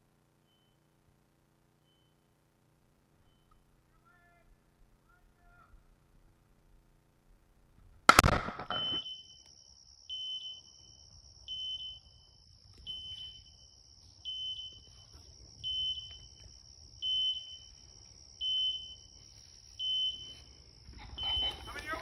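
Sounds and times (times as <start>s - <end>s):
faint high whine: 0.0s - 22.0s
shotgun shot: 8.1s - 9.0s
electronic double beep: 8.6s - 9.3s.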